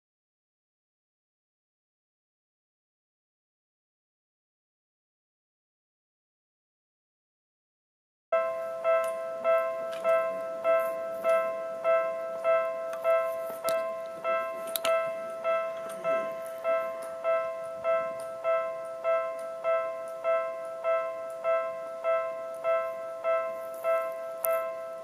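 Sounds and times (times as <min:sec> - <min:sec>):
level crossing bell ringing: 0:08.4 - 0:25.0.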